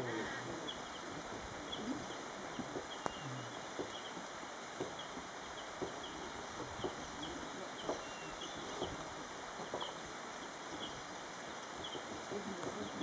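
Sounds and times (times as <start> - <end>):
steady hiss: 0.0 - 13.0
soft low taps: 2.5 - 10.0.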